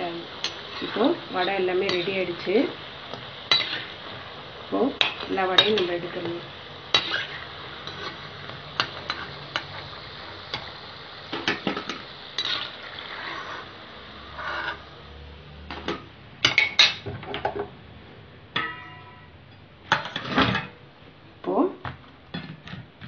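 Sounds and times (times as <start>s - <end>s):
oil sizzling: 0.0s - 21.2s
metal spoon clinking against metal pan: 5.0s - 6.1s, 18.6s - 20.2s.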